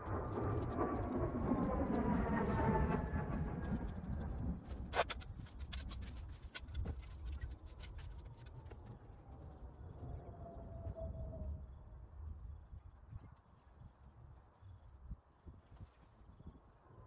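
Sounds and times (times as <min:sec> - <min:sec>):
low rumble: 0:00.0 - 0:13.4
hand tool scraping soil: 0:04.7 - 0:08.4.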